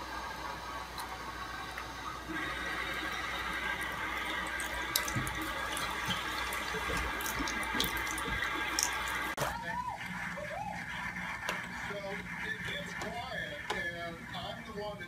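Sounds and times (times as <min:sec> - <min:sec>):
tap water running into sink: 0:00.9 - 0:09.4
water splashing on fur: 0:04.3 - 0:09.4.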